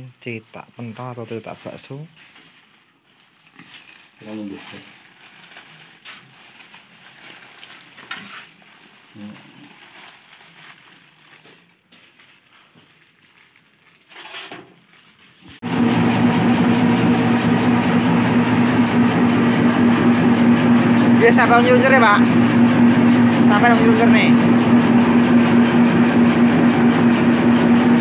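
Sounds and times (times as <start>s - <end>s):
electric motor humming: 15.7s - 28.0s.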